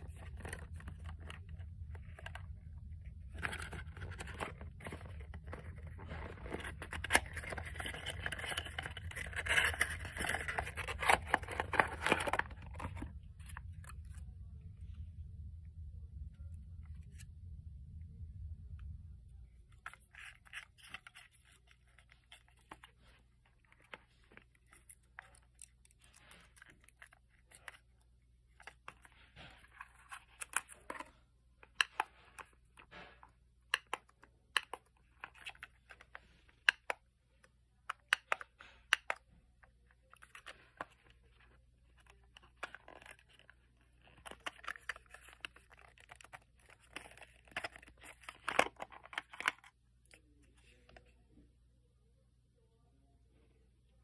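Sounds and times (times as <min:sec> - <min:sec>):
plastic rubbing and scraping: 0:00.0 - 0:14.2, 0:40.0 - 0:51.1.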